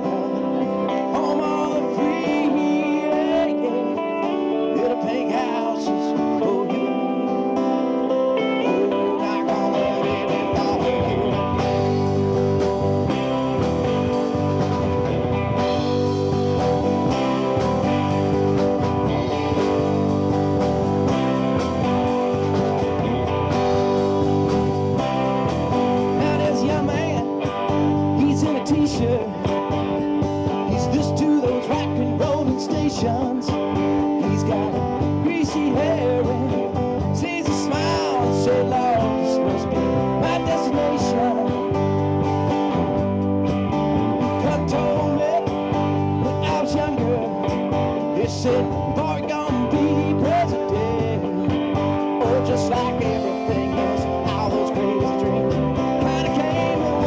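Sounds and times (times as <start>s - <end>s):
man singing into a microphone: 0.0s - 12.3s, 25.8s - 29.9s, 30.5s - 42.0s, 44.2s - 57.0s
live rock band playing: 0.0s - 57.0s.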